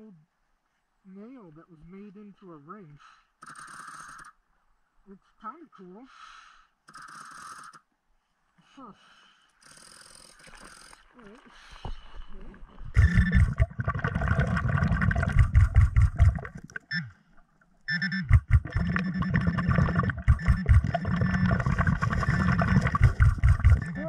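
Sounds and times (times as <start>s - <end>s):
underwater bubbling of exhaled air: 12.1s - 16.9s, 18.3s - 24.0s.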